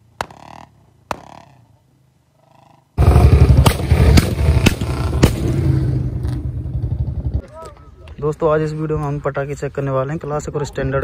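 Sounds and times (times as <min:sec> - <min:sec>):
exhaust backfire pops: 0:03.3 - 0:07.4.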